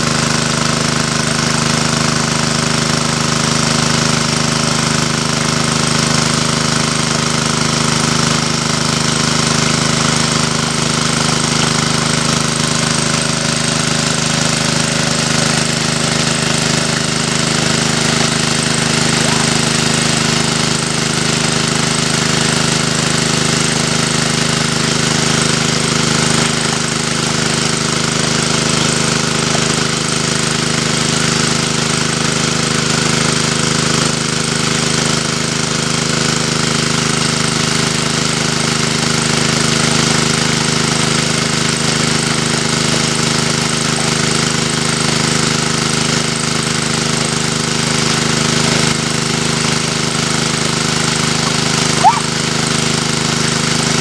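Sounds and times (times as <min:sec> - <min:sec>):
water pump engine running: 0:00.0 - 0:54.0.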